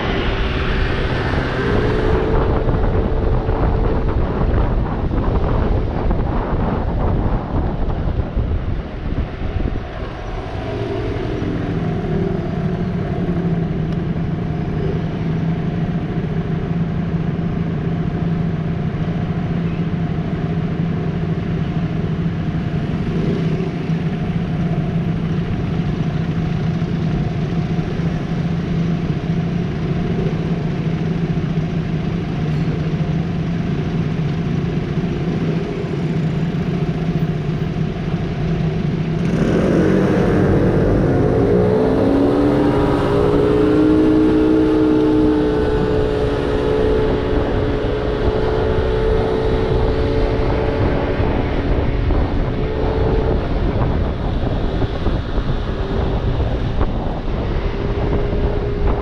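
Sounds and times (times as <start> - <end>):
scooter engine idling: 23.7 - 39.2.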